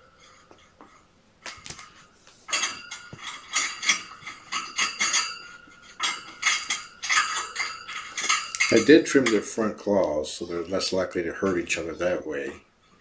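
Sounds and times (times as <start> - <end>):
hard objects clinking against a dish: 0.1 - 9.6.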